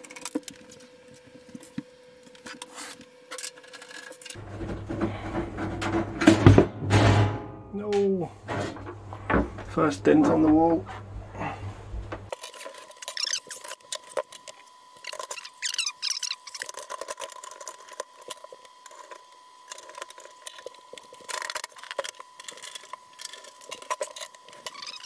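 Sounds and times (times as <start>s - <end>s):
short high squeaks: 12.9s - 13.8s, 15.0s - 16.8s.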